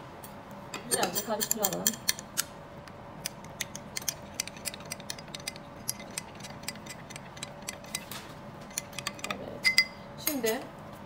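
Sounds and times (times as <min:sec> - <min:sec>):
spoon clinking against glass: 0:08.7 - 0:10.6.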